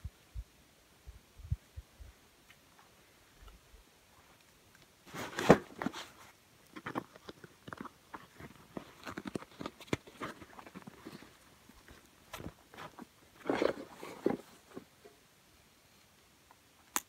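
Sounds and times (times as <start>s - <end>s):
canvas rustling: 5.0s - 6.4s, 8.2s - 14.9s.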